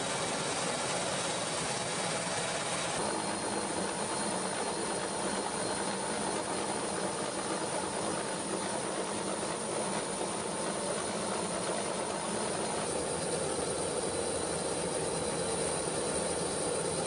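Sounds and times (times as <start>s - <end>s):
helicopter in flight: 0.0s - 17.0s.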